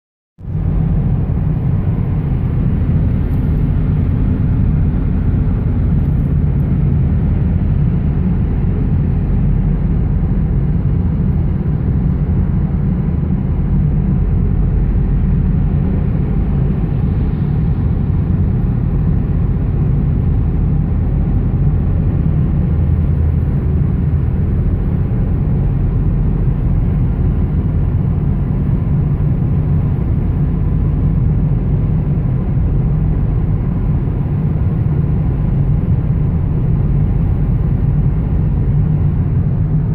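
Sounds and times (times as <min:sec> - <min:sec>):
car engine and tyre rumble: 0:00.4 - 0:39.9.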